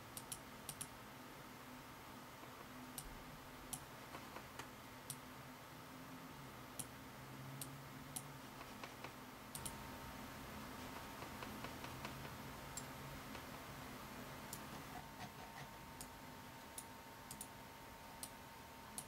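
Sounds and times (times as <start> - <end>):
mouse buttons clicking: 7.6 - 9.8.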